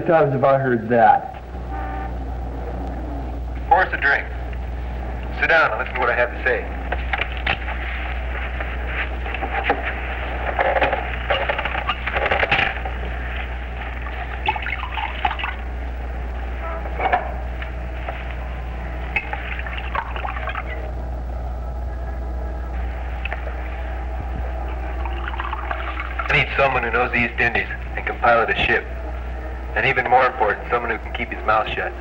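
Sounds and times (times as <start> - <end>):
low hum: 0.0 - 32.0
liquid pouring into a glass: 14.4 - 15.6, 19.2 - 20.8, 25.0 - 26.3.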